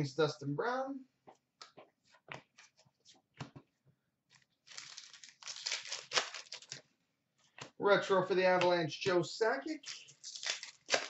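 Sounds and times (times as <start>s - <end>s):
cards rustling and crinkling: 1.7s - 7.8s, 9.7s - 11.0s.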